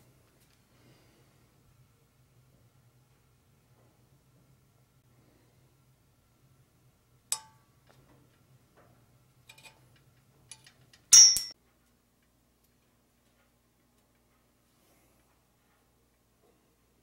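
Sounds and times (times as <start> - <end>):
handling noises on steel bike frame: 7.3 - 11.6
metallic clatter with high ring: 11.1 - 11.6.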